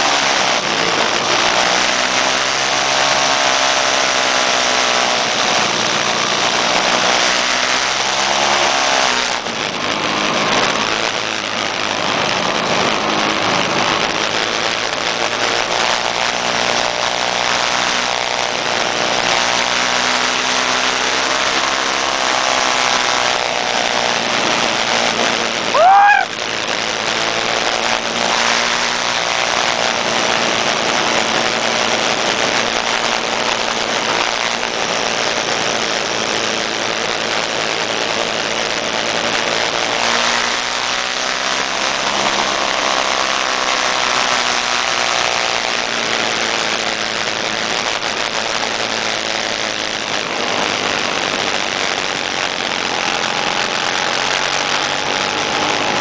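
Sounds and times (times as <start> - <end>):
rushing riding noise: 0.0 - 56.0
scooter engines revving: 0.0 - 56.0.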